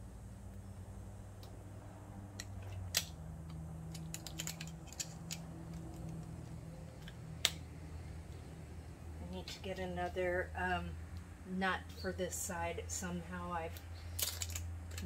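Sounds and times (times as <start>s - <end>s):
low steady hum: 0.0s - 15.0s
metal clips clicking: 2.3s - 7.6s, 14.1s - 15.0s.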